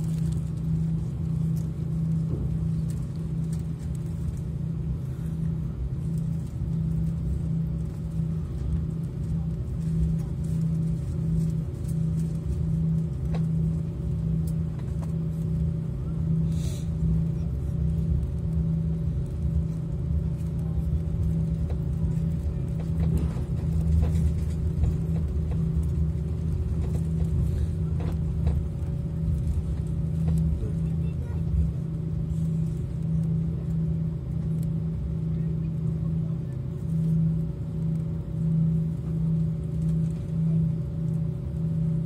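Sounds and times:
aircraft cabin engine hum: 0.0s - 42.0s.

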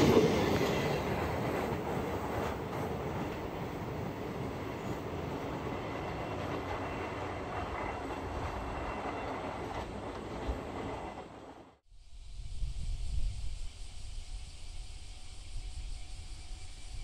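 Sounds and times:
train wheels rolling on rails: 0.0s - 11.8s.

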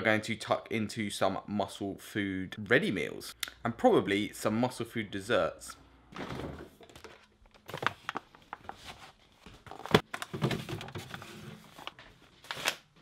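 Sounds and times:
items knocking on fridge shelves: 6.2s - 7.0s.

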